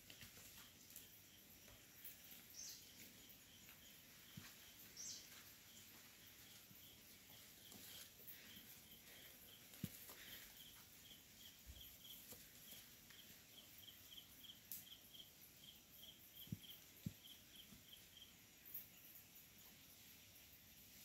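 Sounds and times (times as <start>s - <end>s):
insect chirping: 0.0s - 21.0s.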